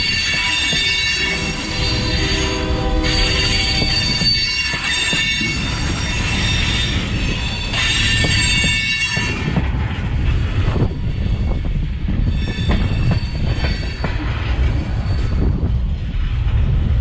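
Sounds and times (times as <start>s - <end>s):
high wheel squeal: 0.0s - 9.6s, 12.2s - 15.6s
train wheels rumbling on rails: 0.0s - 17.0s.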